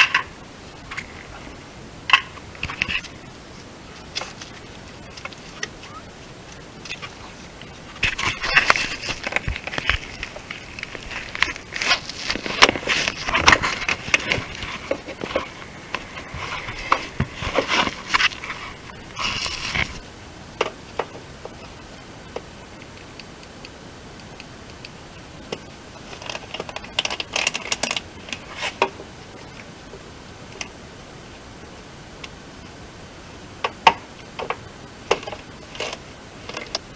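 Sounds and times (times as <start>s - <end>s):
scraping and rustling: 0.0s - 20.1s.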